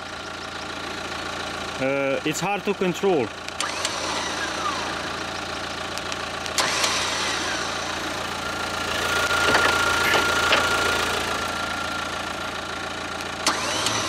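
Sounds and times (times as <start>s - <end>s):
car engine idling: 0.0s - 14.0s
electric winch motor whine: 3.6s - 14.0s
clicks: 9.0s - 11.0s.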